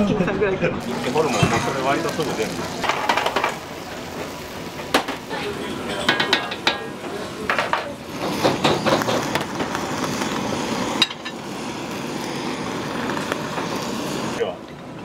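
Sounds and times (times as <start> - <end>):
steady rushing noise: 0.8 - 14.6
cookware clanking: 4.9 - 9.3.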